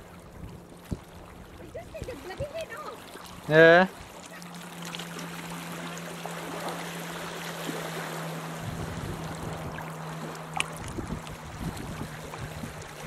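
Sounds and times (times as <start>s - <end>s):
outboard motor drone: 0.0s - 13.0s
wind buffeting microphone: 0.2s - 3.4s, 8.4s - 13.0s.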